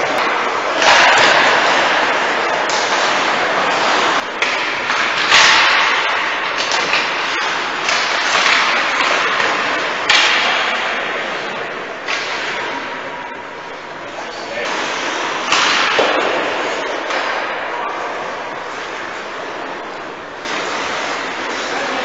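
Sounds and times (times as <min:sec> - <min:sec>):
stick and puck clacks: 0:00.0 - 0:13.2, 0:14.5 - 0:22.0
skate blades scraping ice: 0:20.4 - 0:22.0.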